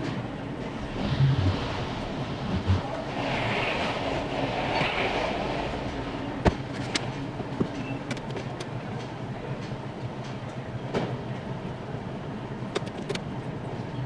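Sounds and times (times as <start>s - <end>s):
steady workshop hum: 0.0s - 14.0s
sharp clicks and knocks: 6.4s - 11.2s, 12.7s - 13.3s.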